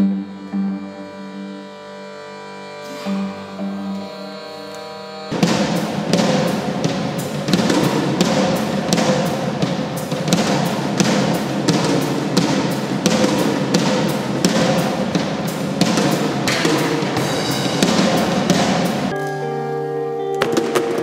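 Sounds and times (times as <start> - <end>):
drums beating steady pulse: 2.8 - 19.1.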